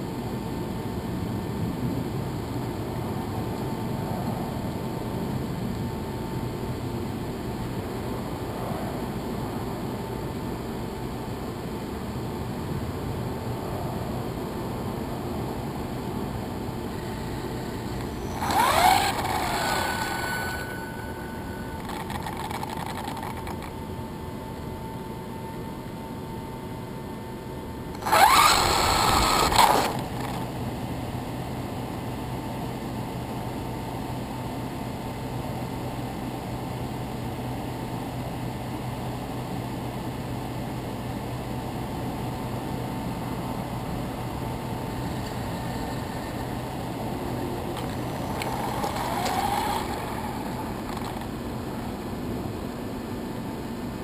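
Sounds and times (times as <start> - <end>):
rc car motor whining: 16.9 - 23.8, 28.0 - 30.5, 45.0 - 52.0.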